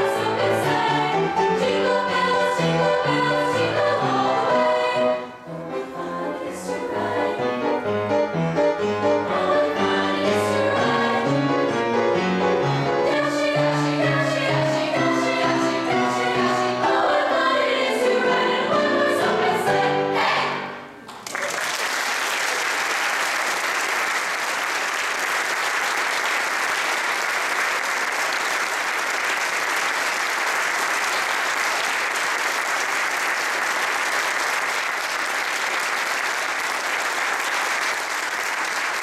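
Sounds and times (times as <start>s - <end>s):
girls' choir singing: 0.0s - 8.0s, 9.0s - 11.9s, 12.8s - 21.0s
audience applause: 21.1s - 39.0s.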